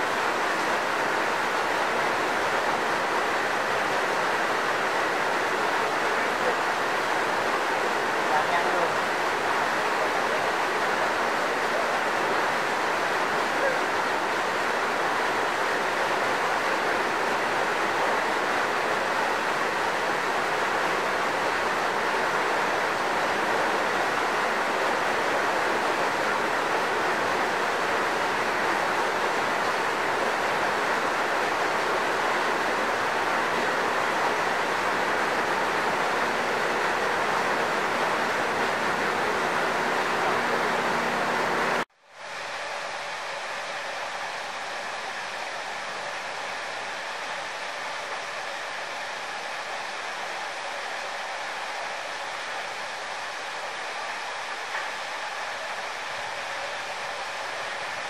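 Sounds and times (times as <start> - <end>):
water flowing in a stream: 0.0 - 58.0.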